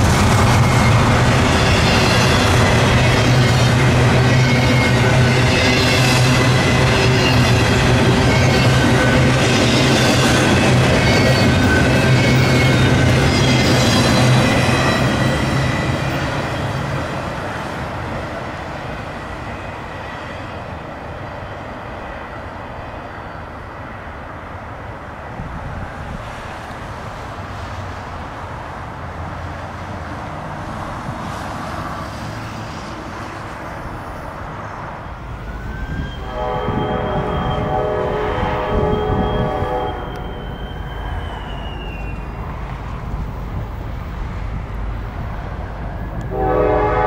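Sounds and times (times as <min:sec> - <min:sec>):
train wheel squeal: 0:00.0 - 0:17.7, 0:18.7 - 0:24.1, 0:32.0 - 0:43.1
freight train wheels rumbling: 0:00.0 - 0:47.0.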